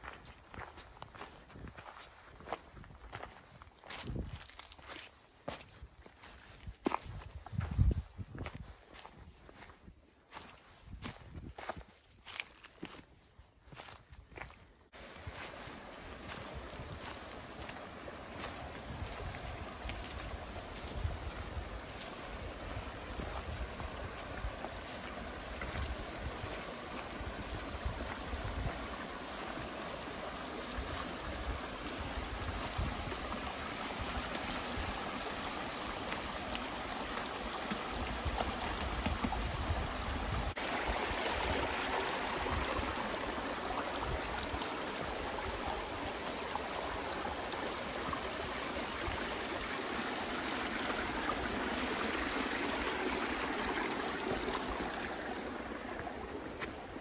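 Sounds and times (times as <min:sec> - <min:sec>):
wind rumble on microphone: 0:02.7 - 0:04.6, 0:06.6 - 0:10.0, 0:10.7 - 0:11.8, 0:18.8 - 0:24.6, 0:27.2 - 0:28.9, 0:30.8 - 0:33.4, 0:38.0 - 0:43.0
creek babbling over stones: 0:13.7 - 0:57.0.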